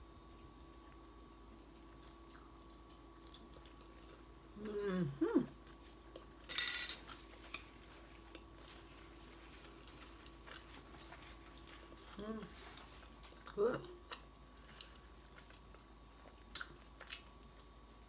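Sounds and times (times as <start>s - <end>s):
faint steady hum: 0.0s - 18.0s
person humming: 4.6s - 5.5s.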